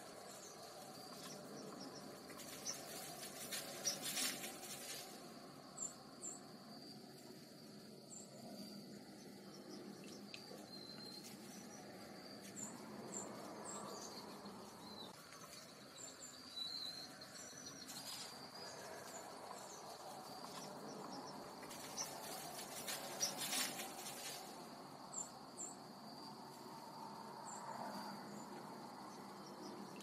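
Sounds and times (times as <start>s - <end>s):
chipmunk rustling dry leaves: 0.0s - 5.4s, 17.8s - 24.7s
insect trill: 0.0s - 30.0s.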